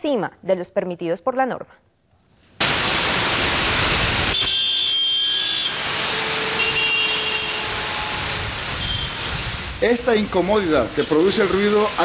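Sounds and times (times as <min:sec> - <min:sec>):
heavy city traffic: 0:03.0 - 0:12.0.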